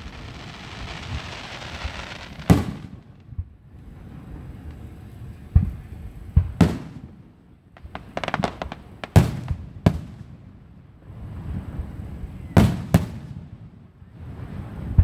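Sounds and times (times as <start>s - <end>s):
fireworks bangs: 0.0s - 3.6s, 5.5s - 10.5s, 11.5s - 13.8s
fireworks crackling pops: 0.0s - 3.6s, 5.5s - 10.4s.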